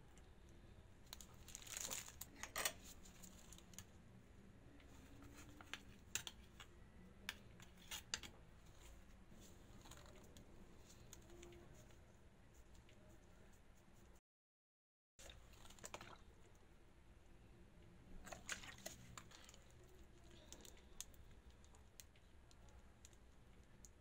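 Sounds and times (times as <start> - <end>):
crinkling rustle: 1.1 - 4.0.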